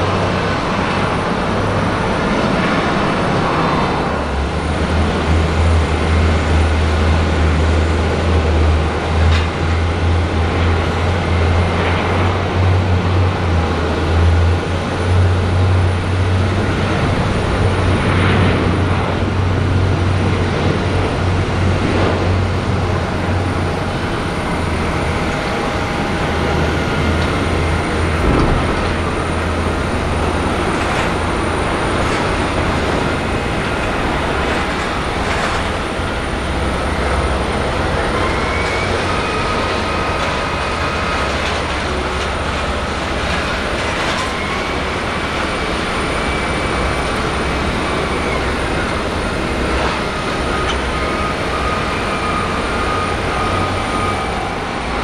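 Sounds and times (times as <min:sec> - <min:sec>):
jet engines roaring: 0:00.0 - 0:55.0.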